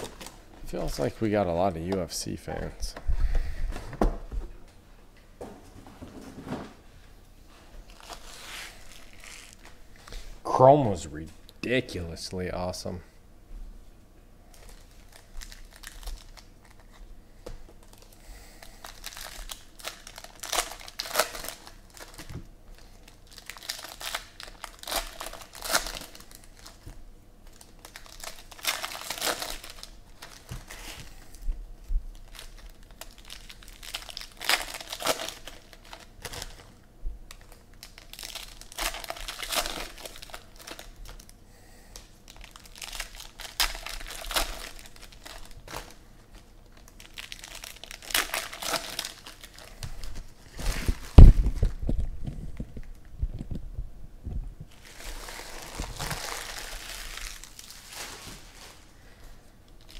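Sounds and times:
foil card packs tearing and crinkling: 7.9s - 9.7s, 14.5s - 17.0s, 17.8s - 31.3s, 32.2s - 41.3s, 42.0s - 51.8s, 54.7s - 59.2s.

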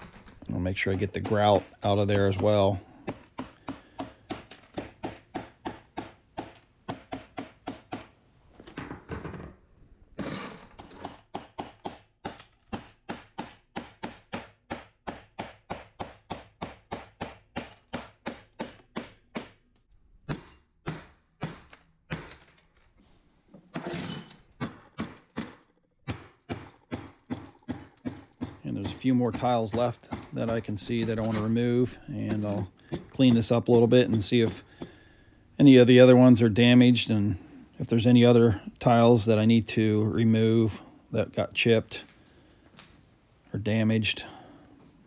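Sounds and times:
hammer chipping ceramic tile: 0.8s - 8.1s, 24.6s - 31.4s, 32.2s - 35.1s.

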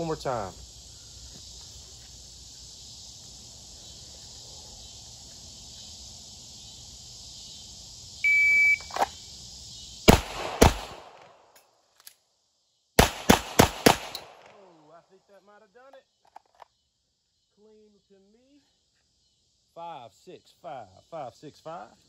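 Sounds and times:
steady high hiss: 0.0s - 11.6s
shot timer beep: 8.3s - 8.9s
pistol shots: 10.1s - 11.4s, 13.0s - 14.6s.

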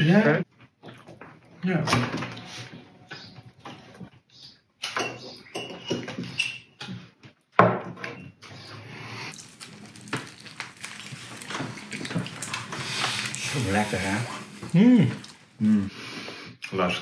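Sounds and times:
wet chewing and smacking: 0.5s - 1.5s, 9.3s - 15.6s.

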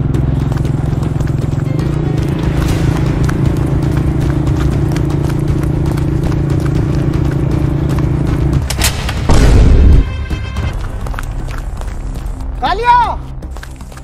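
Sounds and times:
steady low drone: 0.0s - 12.6s
galloping horse hoofbeats: 0.0s - 14.0s
loud deep boom: 8.7s - 10.6s.

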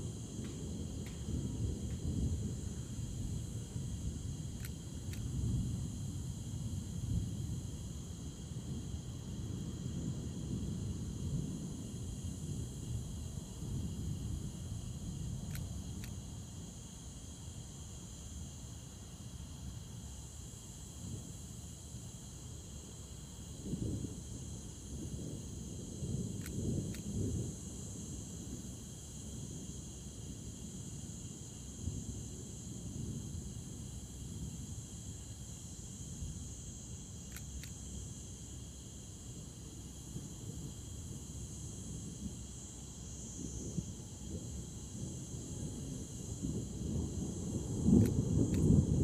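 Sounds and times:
crickets chirring: 0.0s - 49.0s.

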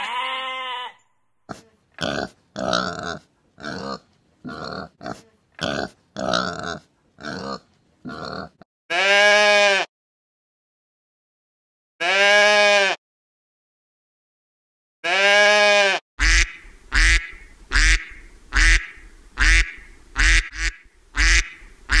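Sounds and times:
goat bleating: 0.0s - 1.0s, 8.1s - 9.9s, 12.0s - 13.0s, 15.0s - 18.8s
duck quacking: 16.2s - 22.0s.

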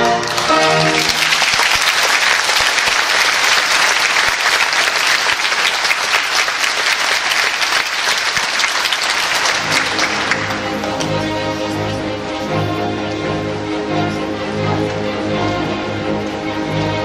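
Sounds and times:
audience applauding: 0.0s - 11.5s
orchestral music: 0.0s - 17.0s.

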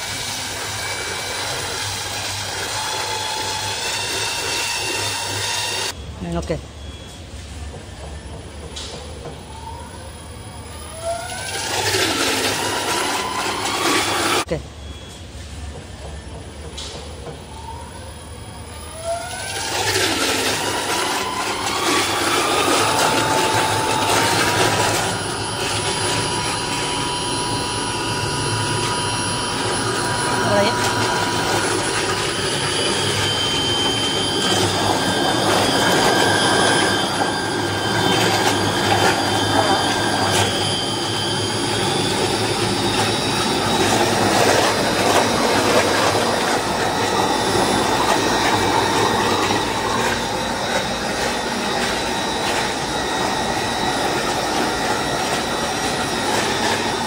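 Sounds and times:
electric motor whine: 0.0s - 6.0s, 17.6s - 57.0s
liquid churning in tank: 0.0s - 6.0s, 10.8s - 14.5s, 18.7s - 57.0s.

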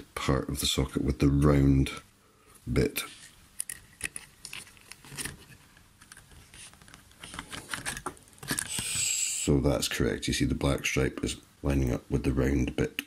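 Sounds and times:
clicks and scratches on circuit board: 3.1s - 9.0s.

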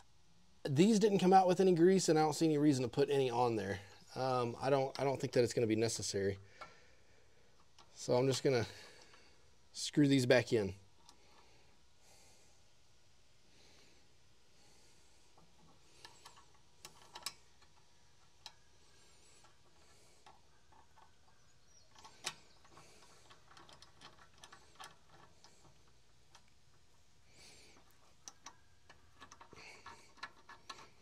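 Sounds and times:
bolts clicking and ticking: 19.4s - 27.1s, 27.7s - 31.0s.

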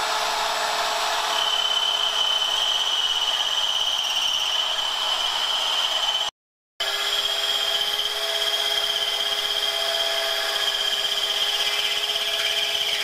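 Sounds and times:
electric sander grinding on metal: 0.0s - 13.0s.

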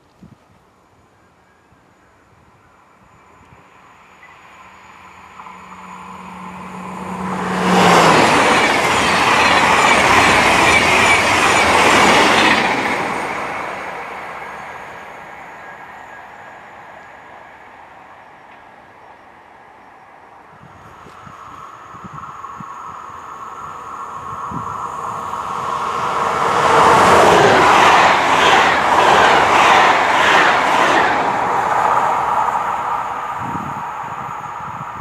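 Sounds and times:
high-speed train passing: 1.5s - 35.0s
rush of wheels and air: 20.5s - 35.0s.

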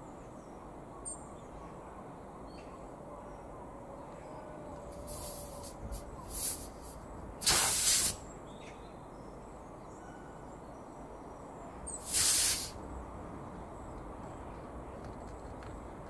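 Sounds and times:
compressed air hissing from tyre: 5.0s - 8.2s, 11.9s - 12.8s.

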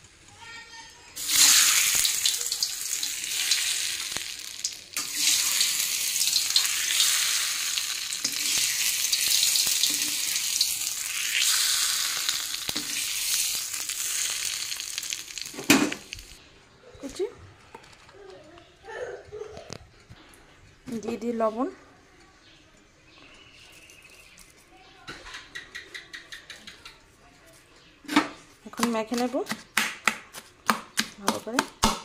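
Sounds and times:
chillies sizzling in hot oil: 1.2s - 16.4s.

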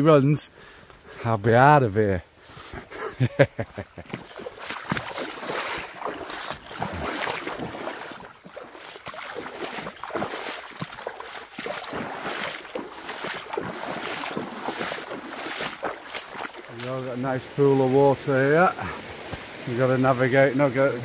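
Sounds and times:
flowing water rushing: 4.1s - 21.0s
footsteps crunching through leaves: 4.2s - 19.8s.

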